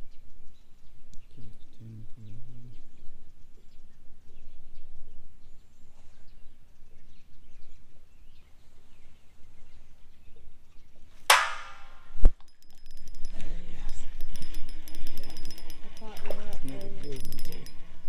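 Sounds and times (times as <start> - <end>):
metallic clang: 11.3 - 13.2
fishing reel clicking: 12.4 - 18.0.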